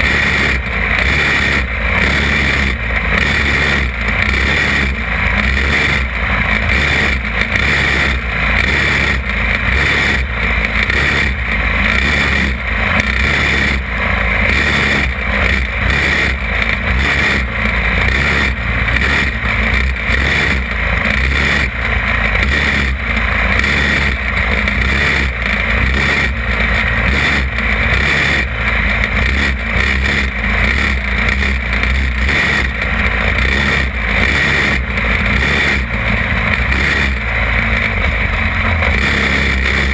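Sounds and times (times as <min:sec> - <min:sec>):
go-kart engine running hard: 0:00.0 - 0:39.9.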